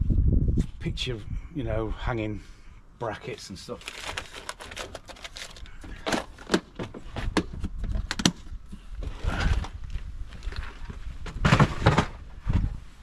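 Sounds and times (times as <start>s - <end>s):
rustling: 3.7s - 7.4s
clattering rustle: 10.3s - 12.9s.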